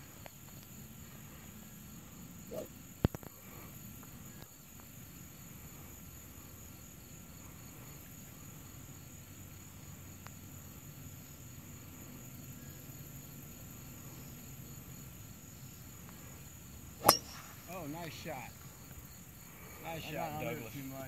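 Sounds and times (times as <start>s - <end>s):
insects chirring: 0.0s - 21.0s
golf driver striking ball: 17.0s - 17.6s.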